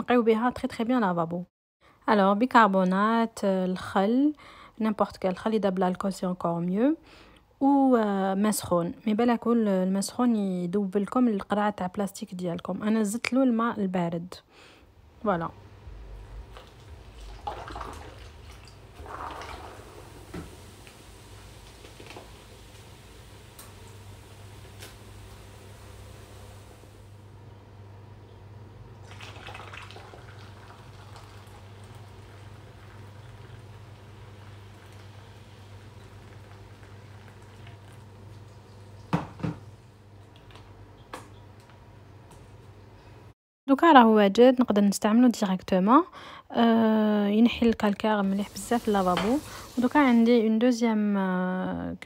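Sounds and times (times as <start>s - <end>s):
liquid splashing and gurgling: 16.2s - 20.7s, 29.0s - 39.2s
water trickling into bottle: 16.5s - 20.4s, 29.0s - 39.0s.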